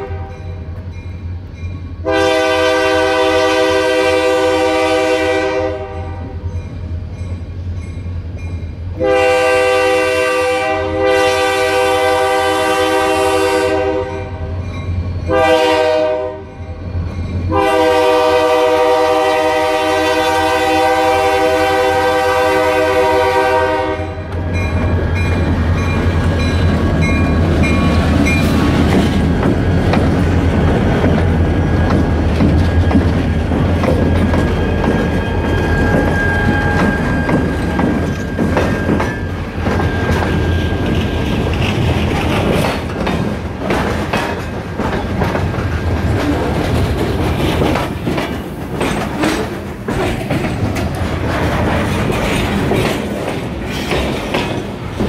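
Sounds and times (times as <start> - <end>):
locomotive air horn: 0.0 - 0.4, 2.0 - 6.4, 9.0 - 14.6, 15.3 - 16.6, 17.5 - 24.6
train engine and wheels rumbling: 0.0 - 55.0
crossing bell ringing: 0.2 - 2.2, 6.0 - 9.0, 14.0 - 15.5, 16.4 - 17.6, 24.4 - 28.8, 32.7 - 41.3.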